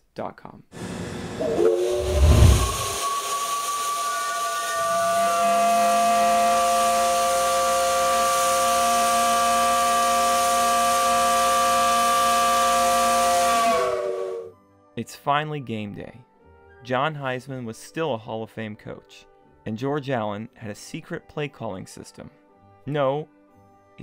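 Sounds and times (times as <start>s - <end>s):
hissing steam: 0.8s - 14.5s
steam whistle chord: 0.8s - 14.6s.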